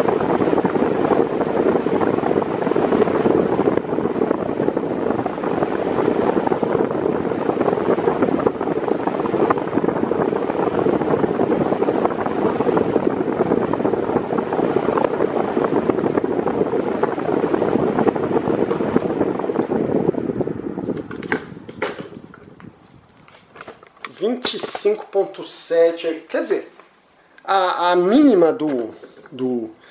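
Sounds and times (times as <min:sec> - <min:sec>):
floor fan airflow buffeting microphone: 0:00.0 - 0:29.9.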